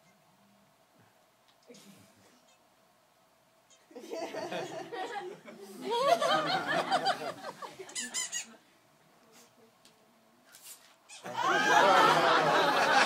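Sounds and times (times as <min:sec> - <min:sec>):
crowd chatter and laughter: 0:05.0 - 0:08.6
rubber balloon squeaking: 0:07.9 - 0:08.6.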